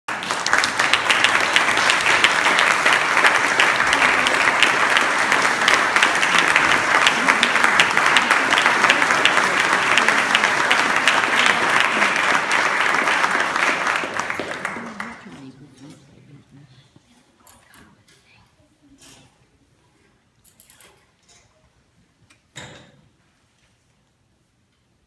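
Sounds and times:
audience applauding: 0.1 - 16.0.

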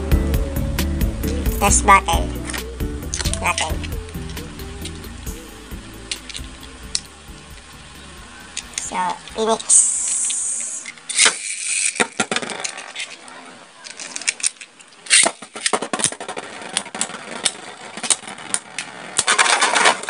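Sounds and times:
spinning tops whirring: 0.0 - 20.0
tops clicking and clacking: 1.2 - 13.2.

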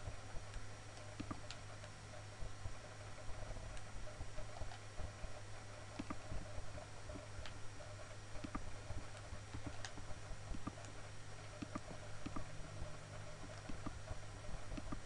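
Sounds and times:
steady low hum: 0.0 - 15.0
computer mouse buttons clicking: 1.0 - 1.6, 5.9 - 6.3, 8.4 - 10.9, 11.6 - 12.5, 13.4 - 14.0, 14.8 - 15.0.

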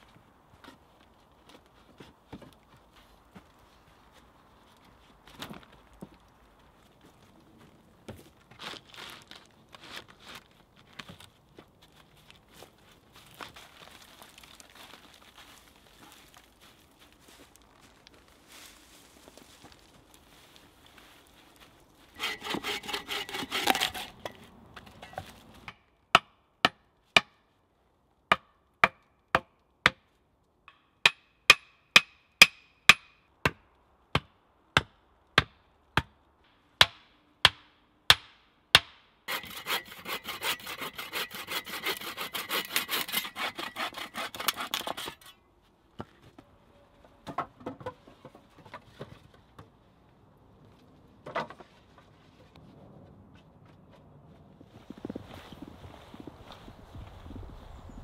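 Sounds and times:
hand saw cutting wood: 22.2 - 24.5, 39.3 - 45.4.

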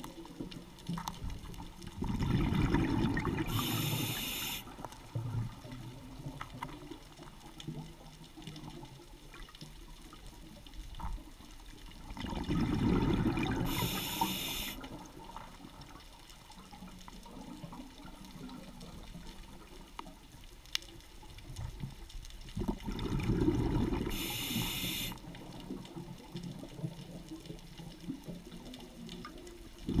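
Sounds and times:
underwater bubbling: 0.0 - 30.0
short hiss: 3.5 - 4.7, 13.7 - 14.8, 24.1 - 25.2.

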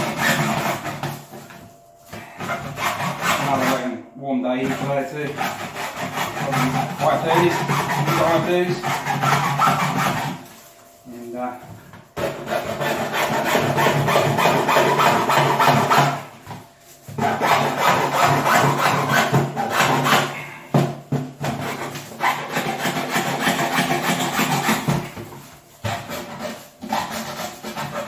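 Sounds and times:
hacksaw rasping through plastic: 0.0 - 1.5, 2.4 - 3.9, 4.6 - 10.5, 12.2 - 16.3, 17.1 - 28.0.

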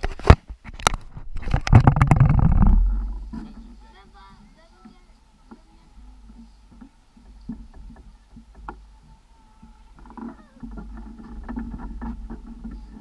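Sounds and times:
wind rumbling on microphone: 0.0 - 13.0
small knocks and taps: 4.8 - 13.0.

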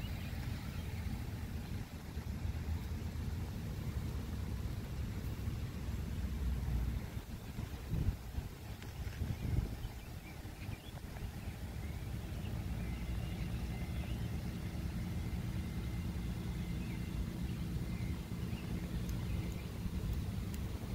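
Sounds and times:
faint hum: 0.0 - 20.9
motor vehicle rumble: 0.0 - 20.9
faint bird chirps: 7.9 - 20.9.

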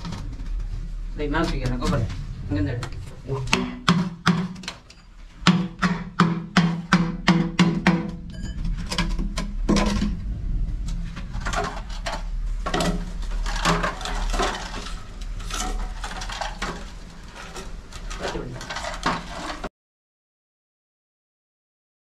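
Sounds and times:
low hum: 0.0 - 5.5, 7.3 - 19.2.

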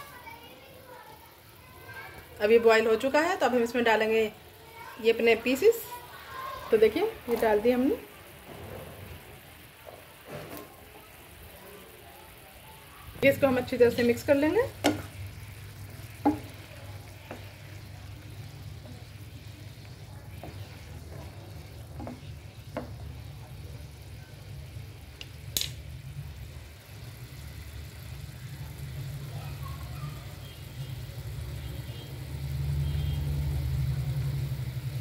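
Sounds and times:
syrup bubbling and sizzling: 0.0 - 35.0
spoon knocking against pan: 14.7 - 15.2, 16.1 - 16.7, 20.3 - 23.2.

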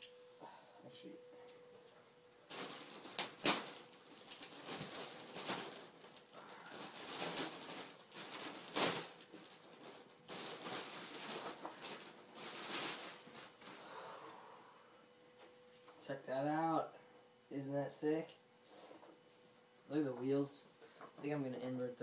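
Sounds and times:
plastic wrapping crinkling: 2.4 - 14.0.

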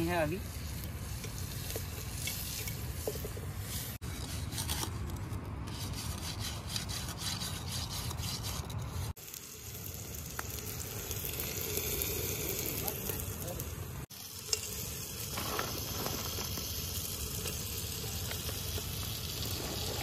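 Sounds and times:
metal utensil scraping stone: 0.0 - 9.2
spoon stirring frying onions: 0.4 - 4.0.

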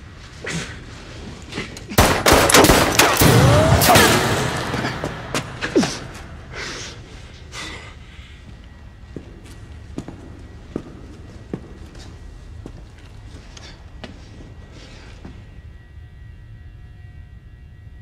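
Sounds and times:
gunfire-like bangs and impacts: 2.0 - 6.5.

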